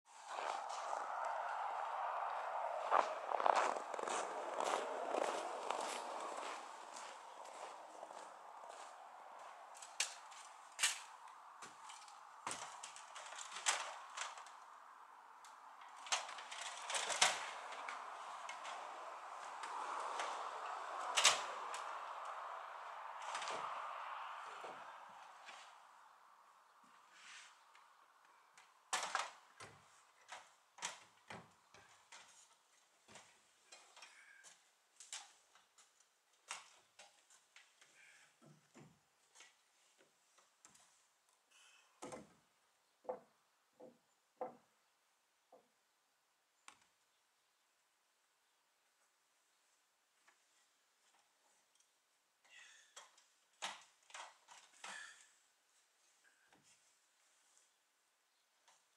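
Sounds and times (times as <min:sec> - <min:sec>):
knocks and clunks of timber: 0:43.0 - 0:44.7.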